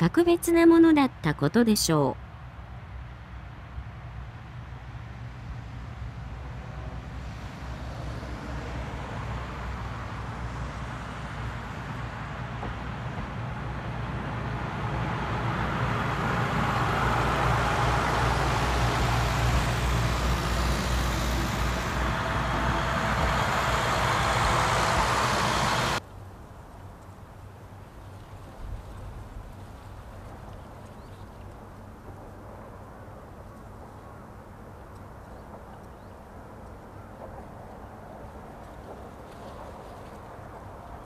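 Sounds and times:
diesel train engines: 0:00.0 - 0:28.0
train wheels rumbling on rails: 0:05.0 - 0:26.0.

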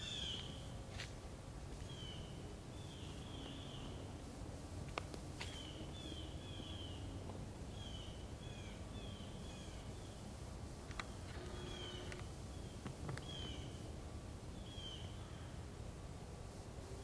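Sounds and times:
birds chirping: 0:00.0 - 0:00.7, 0:01.8 - 0:04.1, 0:10.9 - 0:13.9
low background noise: 0:00.0 - 0:17.0.

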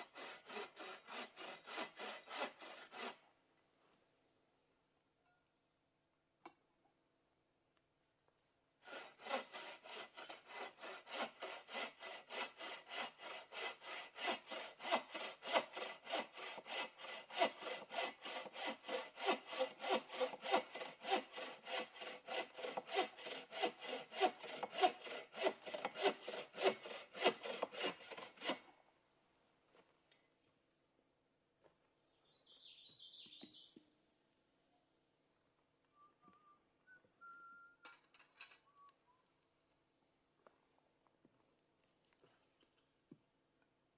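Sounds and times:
hand saw cutting wood: 0:00.0 - 0:03.3, 0:08.8 - 0:28.8.

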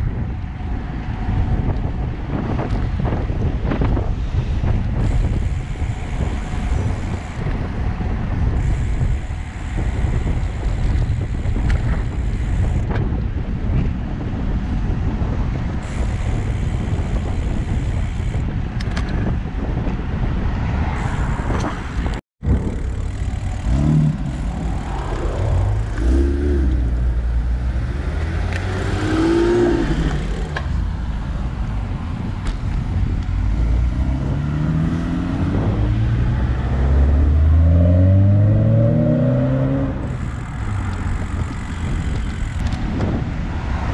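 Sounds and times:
road rumble: 0:00.0 - 0:43.9
wind buffeting microphone: 0:00.0 - 0:43.9
passing car engines: 0:20.5 - 0:42.0.

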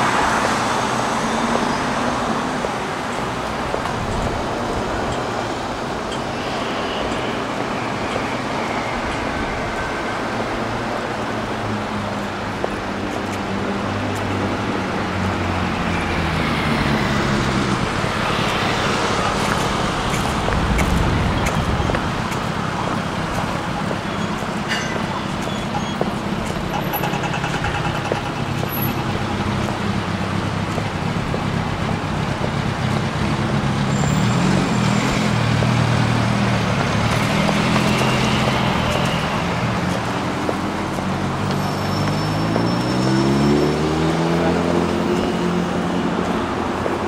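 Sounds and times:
passing cars: 0:00.0 - 0:47.0
vehicle engine accelerating: 0:26.6 - 0:47.0.

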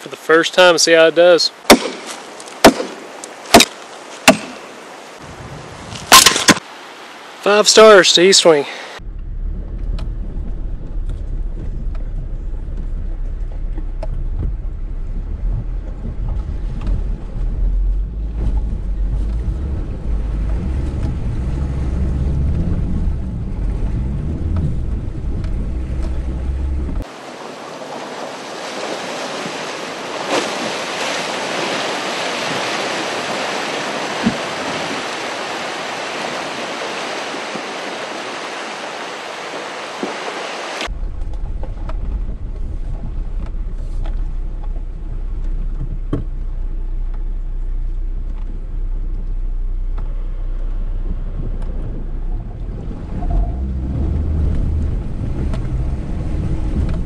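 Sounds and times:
water rushing and splashing: 0:00.0 - 0:47.3, 0:47.9 - 0:57.0
wind on camera: 0:02.2 - 0:06.7, 0:09.0 - 0:47.4, 0:48.2 - 0:57.0
engine low rumble: 0:09.0 - 0:27.1, 0:40.8 - 0:57.0.

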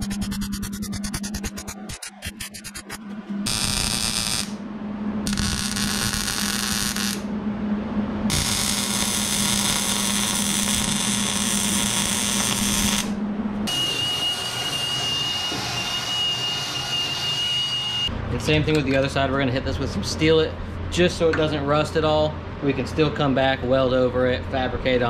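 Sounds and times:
welding arc crackling: 0:00.0 - 0:04.6, 0:05.3 - 0:07.3, 0:08.3 - 0:14.8
welder hum: 0:00.0 - 0:18.1
power tool whine: 0:05.2 - 0:07.3, 0:08.3 - 0:18.1.

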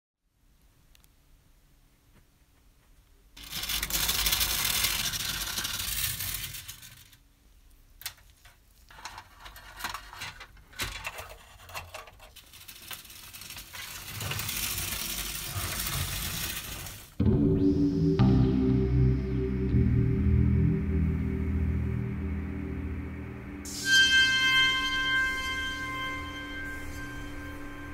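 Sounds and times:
hand crank winding a chain: 0:03.4 - 0:07.2, 0:12.3 - 0:17.1
tin toy vehicles whirring: 0:03.4 - 0:07.2, 0:11.8 - 0:17.2.

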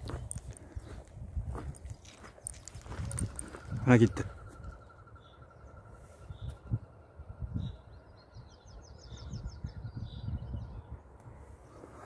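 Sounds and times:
songbird trilling: 0:02.9 - 0:10.9.

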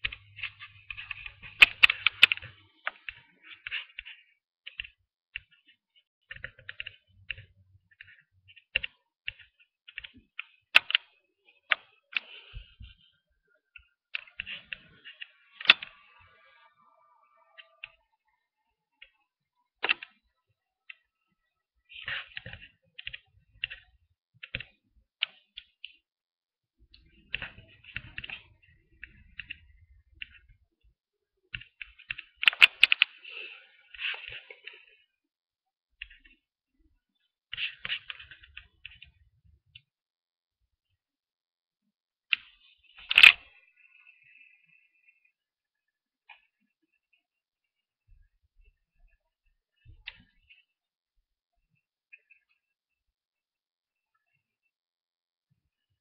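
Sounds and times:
computer keyboard typing: 0:00.0 - 0:12.6, 0:31.5 - 0:34.9
keyboard keys clicking: 0:31.4 - 0:34.8, 0:42.3 - 0:43.5.

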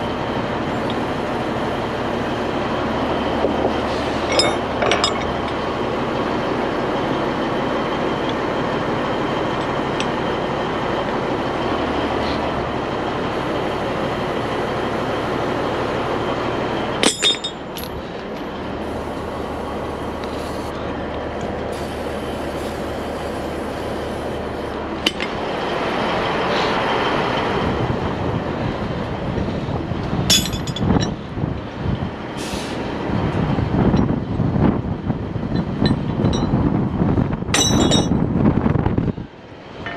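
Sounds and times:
low engine hum: 0:00.0 - 0:39.9
metal chains clanking: 0:04.3 - 0:05.6, 0:17.0 - 0:18.0, 0:30.3 - 0:31.2, 0:35.6 - 0:36.6, 0:37.6 - 0:38.2
wind noise on microphone: 0:27.4 - 0:39.4.

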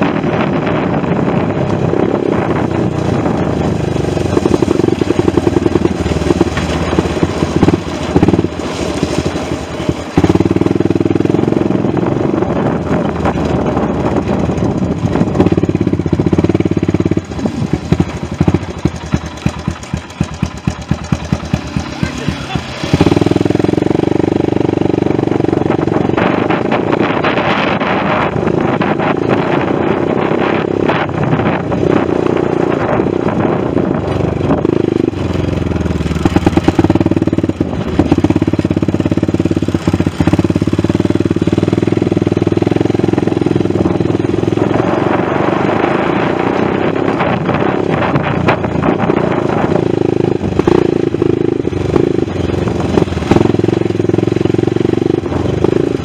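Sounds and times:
atv engine running: 0:00.0 - 0:56.0
rattles and knocks over bumps: 0:02.6 - 0:25.2.

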